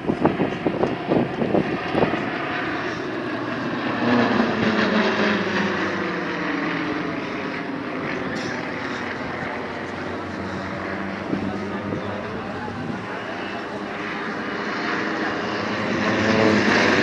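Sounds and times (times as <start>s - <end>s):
aircraft engines droning overhead: 0.0s - 17.0s.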